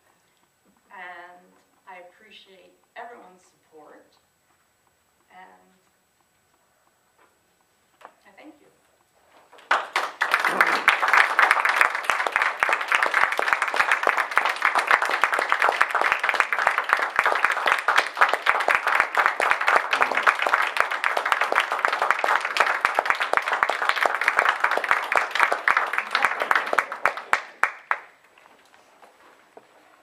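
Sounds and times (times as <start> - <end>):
small group applauding: 9.6 - 28.5.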